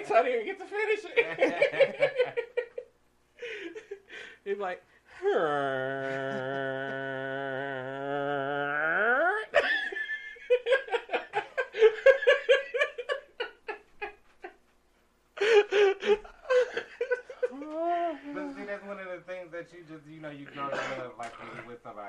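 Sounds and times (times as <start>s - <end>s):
laughter and giggling: 1.0s - 4.1s, 9.5s - 14.6s, 15.4s - 18.6s.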